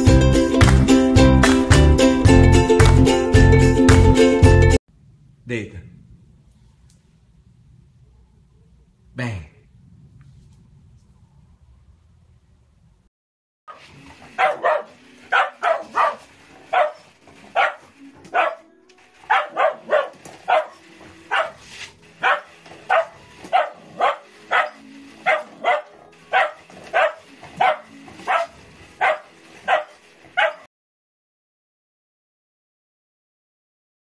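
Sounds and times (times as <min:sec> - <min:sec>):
dog barking: 0:13.7 - 0:18.7, 0:19.3 - 0:30.7.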